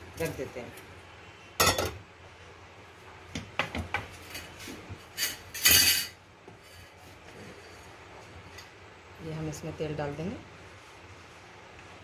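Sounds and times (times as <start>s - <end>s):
pan clanking on metal stove: 1.6s - 2.0s.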